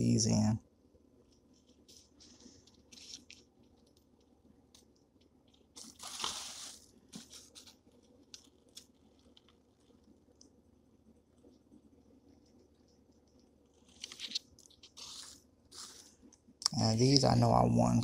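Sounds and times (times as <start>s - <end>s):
light crackles and taps: 1.3s - 5.8s, 7.1s - 10.6s, 11.3s - 15.0s
card stock rustling: 5.8s - 7.8s.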